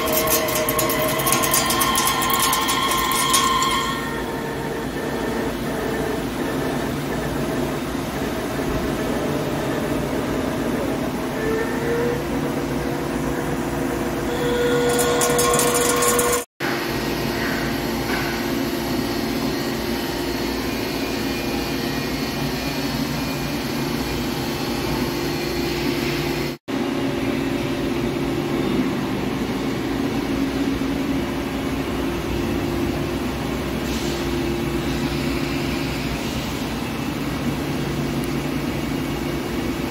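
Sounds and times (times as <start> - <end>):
lathe mechanical hum: 0.0 - 39.9.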